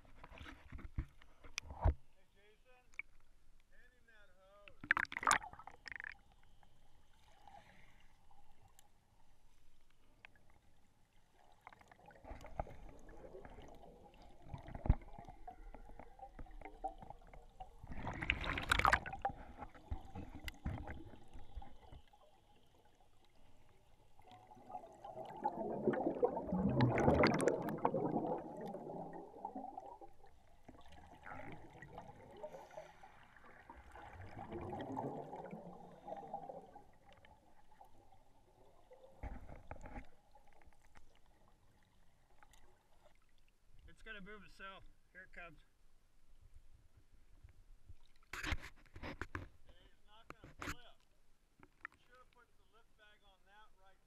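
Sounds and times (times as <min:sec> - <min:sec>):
underwater air bubbles: 0:04.8 - 0:08.8, 0:10.1 - 0:43.2.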